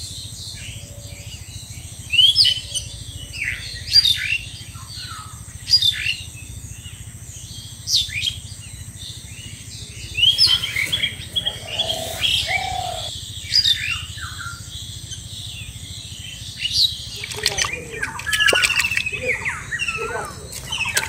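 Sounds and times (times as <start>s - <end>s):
birds chirping: 9.6s - 13.1s.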